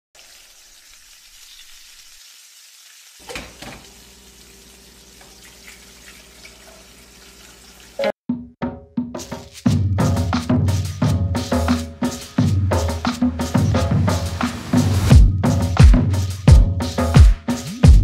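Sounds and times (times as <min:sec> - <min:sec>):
food sizzling in clay pot: 0:00.1 - 0:08.1
music: 0:08.0 - 0:18.0.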